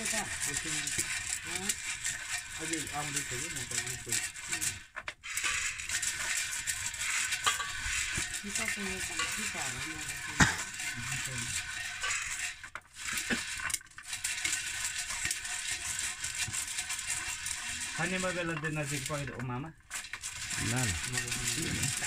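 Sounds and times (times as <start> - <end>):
corn kernels rattling in metal pot: 0.0 - 22.0
kernel popping: 0.0 - 22.0.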